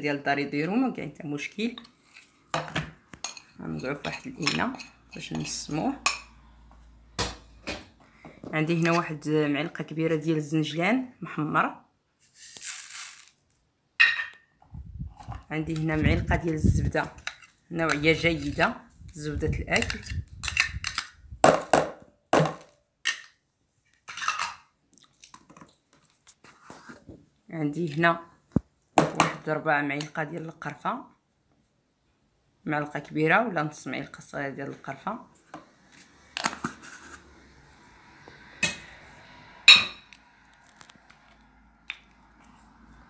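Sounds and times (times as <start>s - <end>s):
spoon scraping bowl: 1.8s - 2.5s, 3.2s - 6.3s, 16.8s - 18.8s, 35.8s - 41.0s
metal spoon clinking: 3.2s - 6.3s, 39.7s - 40.1s.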